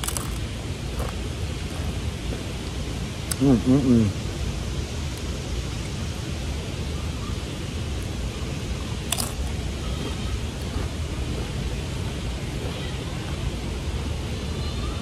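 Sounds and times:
tortilla chip crunch: 0:00.0 - 0:00.4, 0:09.1 - 0:09.4
low outdoor rumble: 0:00.0 - 0:15.0.

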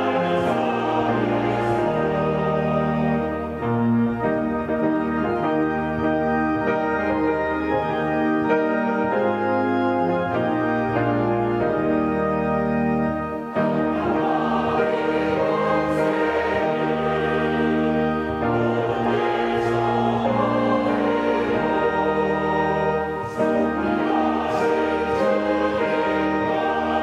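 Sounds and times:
choir singing a hymn: 0:00.0 - 0:27.0
organ: 0:00.0 - 0:27.0
piano: 0:00.0 - 0:27.0.

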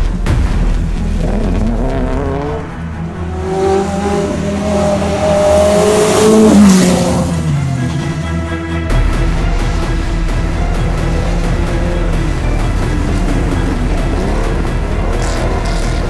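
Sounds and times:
rally car engines revving: 0:00.8 - 0:16.0
car passing close: 0:01.3 - 0:08.3.

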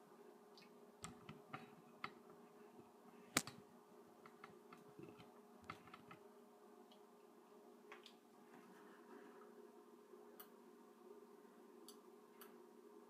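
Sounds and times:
computer hum: 0:00.0 - 0:13.0
light clicks and ticks: 0:10.4 - 0:10.6, 0:11.8 - 0:12.6.

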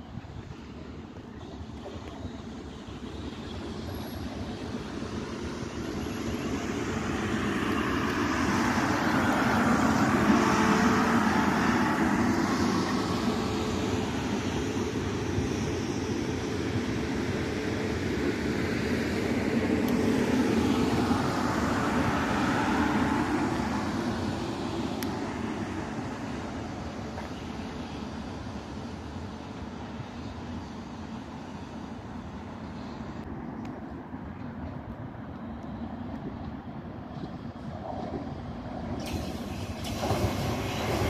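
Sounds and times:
train wheels rumbling on rails: 0:00.0 - 0:41.0
train motor whine: 0:39.0 - 0:41.0.

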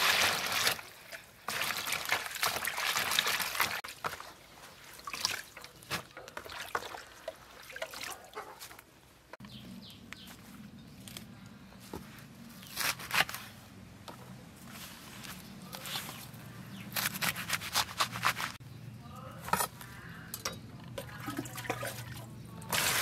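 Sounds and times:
water dripping and trickling: 0:00.0 - 0:08.8, 0:20.3 - 0:23.0.

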